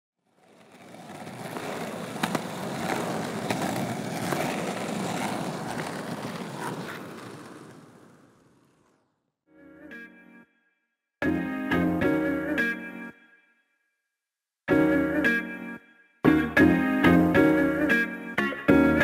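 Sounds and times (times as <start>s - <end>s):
skateboard rolling on pavement: 0.2s - 9.2s, 16.3s - 18.1s, 18.7s - 19.0s
skateboard clacks: 0.3s - 9.1s.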